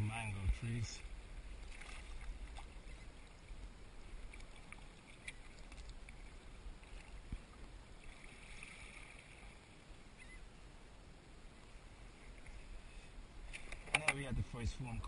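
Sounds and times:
water lapping at hull: 0.0 - 10.6, 11.4 - 14.1
low steady rumble: 0.0 - 15.0
paddle splashes and drips: 1.3 - 9.8.

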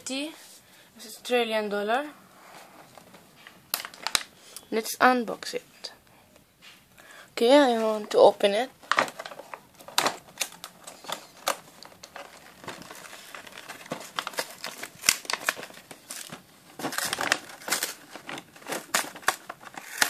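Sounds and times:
plastic packaging crinkling: 3.4 - 4.3, 7.8 - 20.0.

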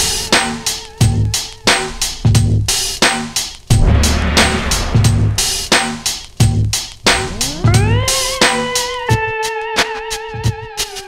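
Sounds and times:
drum beat: 1.8 - 9.1
sustained lead note with vibrato: 3.8 - 6.0.

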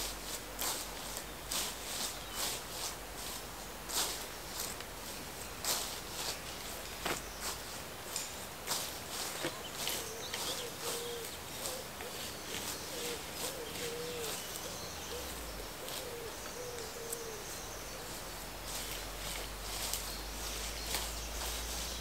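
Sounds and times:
bird hooting: 9.8 - 18.2.

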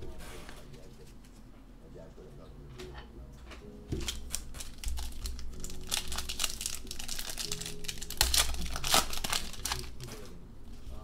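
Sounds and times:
wrapper crinkling and tearing: 4.0 - 10.3.

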